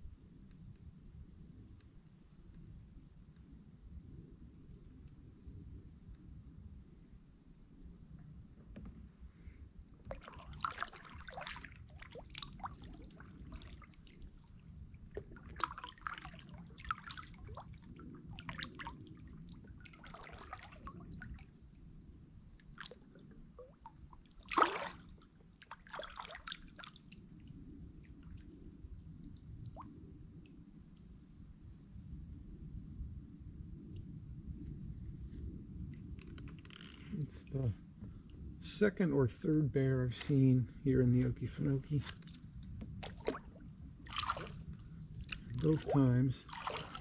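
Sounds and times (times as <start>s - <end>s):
paddle dipping into water: 10.0s - 21.6s, 22.5s - 27.2s, 42.0s - 47.0s
water dripping off paddle: 10.1s - 21.5s, 22.6s - 28.6s, 43.0s - 43.4s, 44.1s - 47.0s
water plop: 10.1s - 21.5s, 22.6s - 27.2s, 43.0s - 47.0s.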